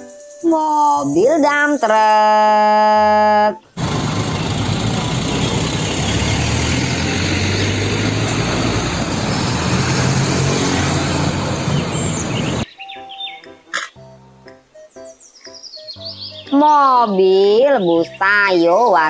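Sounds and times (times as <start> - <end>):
diesel truck driving past: 3.7 - 12.6
road and tyre noise: 3.7 - 12.7.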